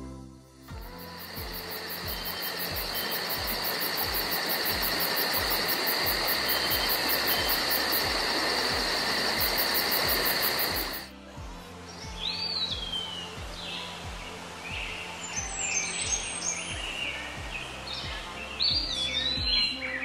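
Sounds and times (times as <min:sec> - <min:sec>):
insects calling: 0:00.7 - 0:11.1.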